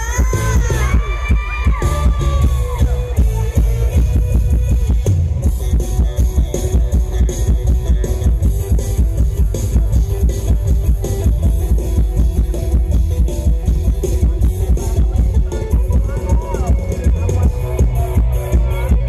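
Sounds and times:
person singing: 0.0 - 4.1
heavy drum-kit beat: 0.0 - 19.0
live band music over sound system: 0.0 - 19.0.

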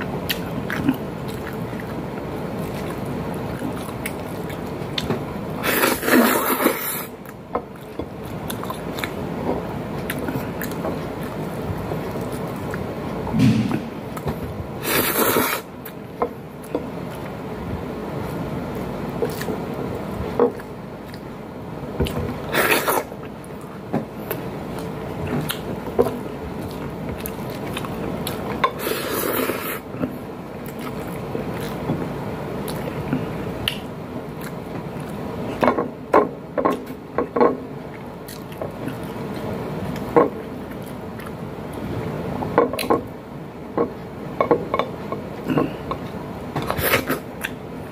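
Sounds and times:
wet chewing: 0.0 - 13.3, 14.0 - 35.7, 36.6 - 42.1, 43.8 - 47.9
loud slurps: 14.8 - 15.7, 22.5 - 23.1.

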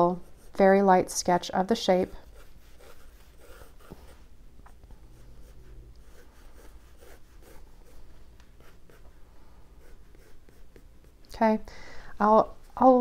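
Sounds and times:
pencil scratching on paper: 0.0 - 0.7, 1.9 - 8.0, 8.6 - 9.2, 9.8 - 11.2.

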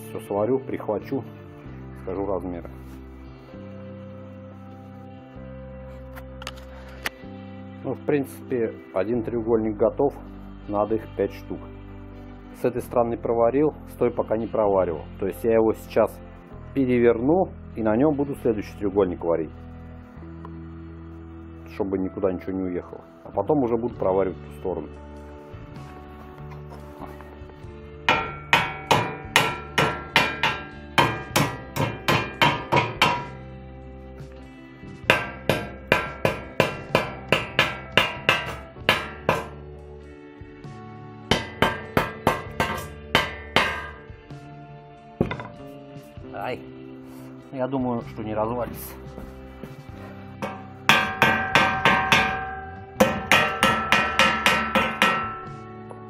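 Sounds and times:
hammer striking steel tube: 28.1 - 33.4, 35.0 - 39.6, 41.3 - 44.1, 45.2 - 45.6, 50.0 - 56.0.

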